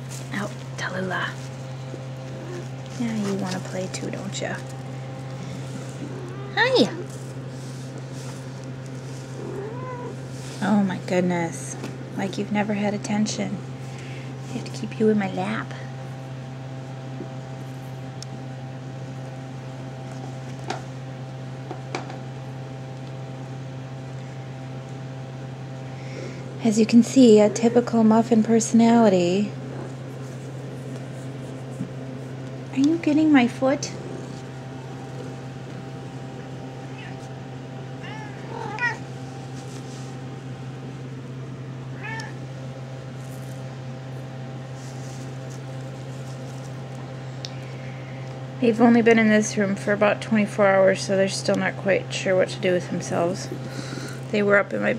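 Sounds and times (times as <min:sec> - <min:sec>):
steady low hum: 0:00.0 - 0:54.9
kitten mewing: 0:05.6 - 0:07.1, 0:09.4 - 0:10.2, 0:36.8 - 0:37.3, 0:38.0 - 0:39.1, 0:41.9 - 0:42.4.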